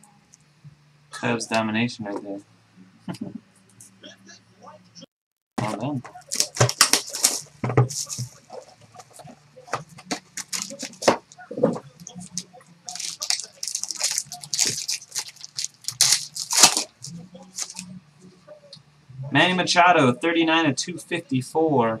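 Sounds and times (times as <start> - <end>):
cards and packaging rustling: 5.6 - 17.9.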